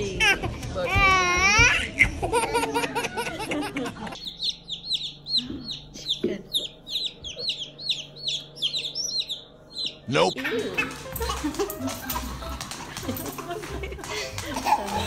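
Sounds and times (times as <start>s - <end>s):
baby chicks peeping: 4.1s - 11.7s.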